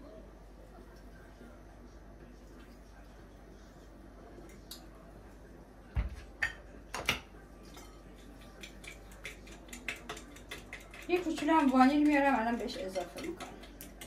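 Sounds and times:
fork beating eggs in bowl: 7.7s - 14.0s.

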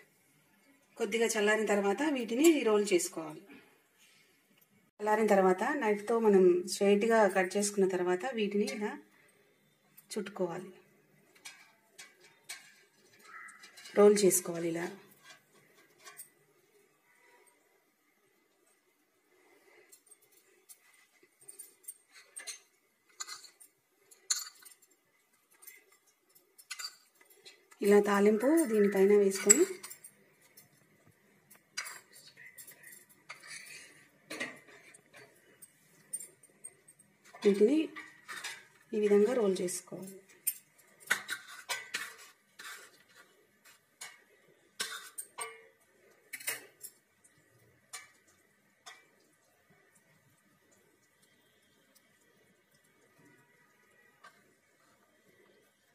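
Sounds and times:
spoon clinking on metal: 11.3s - 16.4s, 19.9s - 30.8s, 31.5s - 38.8s, 40.0s - 49.4s
utensils scraping: 40.5s - 44.2s.

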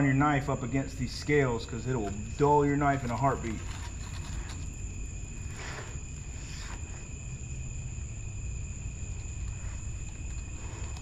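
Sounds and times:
crickets chirring: 0.0s - 11.0s
faint soft scrapes: 5.4s - 7.1s.

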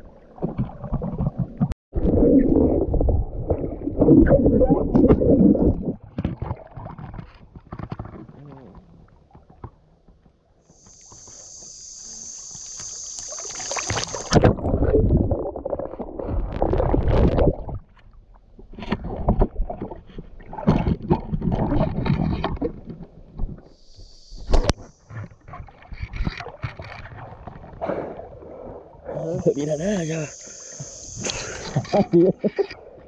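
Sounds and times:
knocks underwater: 2.8s - 10.4s, 13.9s - 23.6s
steady high hiss: 10.7s - 14.4s, 23.7s - 25.4s, 29.2s - 32.4s.

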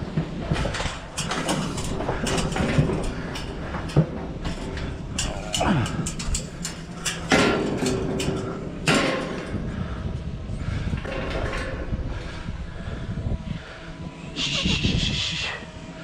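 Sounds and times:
metal panels rattling and clanking: 0.0s - 13.8s
loud ringing metal clangs: 0.7s - 9.9s.

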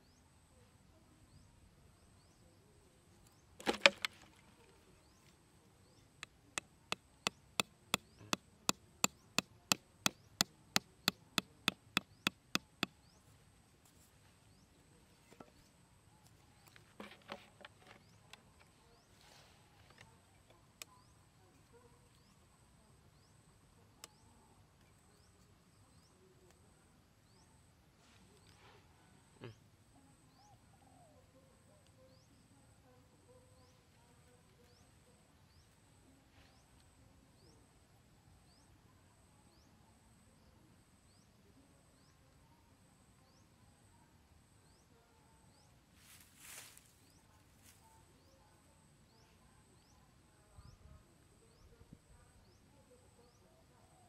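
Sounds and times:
hatchet knocking wooden peg: 3.6s - 4.0s, 9.0s - 12.9s
handling sounds: 3.6s - 4.4s.

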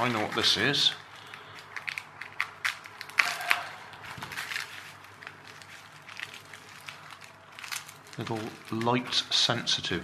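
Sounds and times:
plastic bags crinkling: 0.0s - 10.0s.

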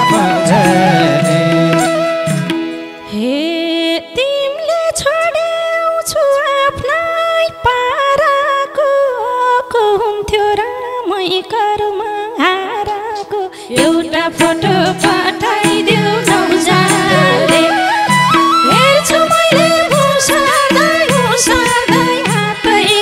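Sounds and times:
woman singing folk melody: 3.1s - 23.0s
hand drum strokes: 13.8s - 23.0s.

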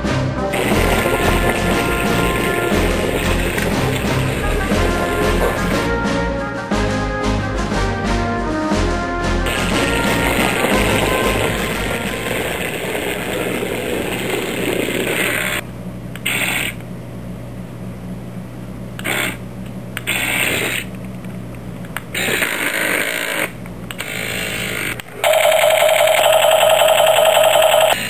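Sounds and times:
loud pulsing electronic buzz: 0.5s - 5.7s
small electric motors whirring: 20.0s - 20.9s, 22.1s - 25.4s.

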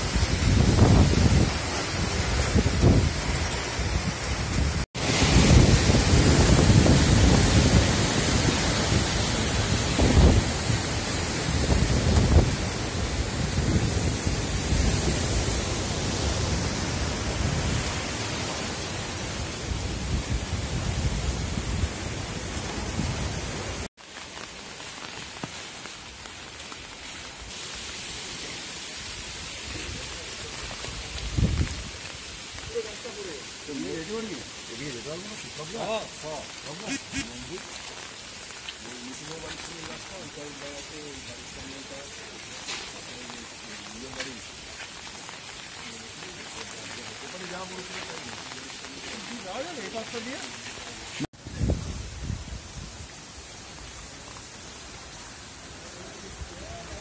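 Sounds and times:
strong wind buffeting microphone: 0.0s - 23.8s, 30.9s - 32.0s, 51.4s - 53.0s
heavy rain: 0.0s - 57.0s.

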